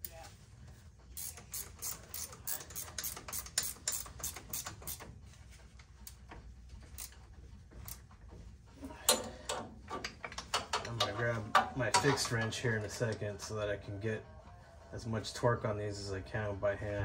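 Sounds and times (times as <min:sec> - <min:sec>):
hand ratchet clicking: 0:01.2 - 0:05.1, 0:06.9 - 0:08.0.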